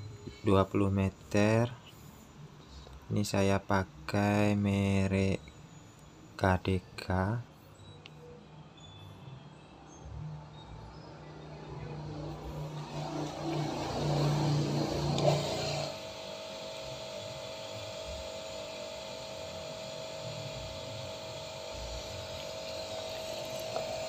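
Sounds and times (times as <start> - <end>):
pressure washer humming: 12.4 - 24.0.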